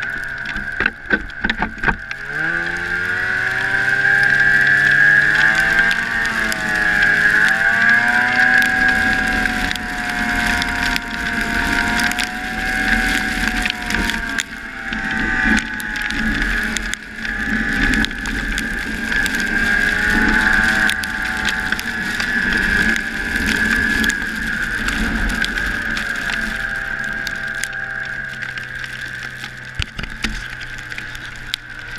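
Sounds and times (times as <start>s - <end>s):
ratcheting clatter of track: 0.0s - 31.9s
snowmobile engine running: 0.0s - 31.9s.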